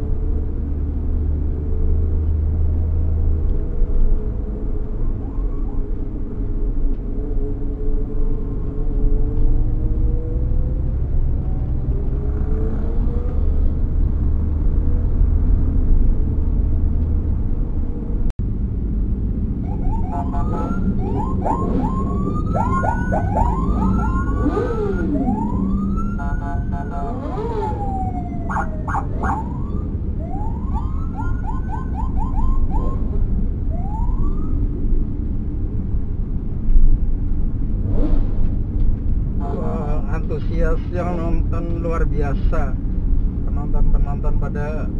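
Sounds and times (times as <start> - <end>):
engine and road rumble: 0.0 - 44.9
emergency sirens whooping: 19.6 - 34.7.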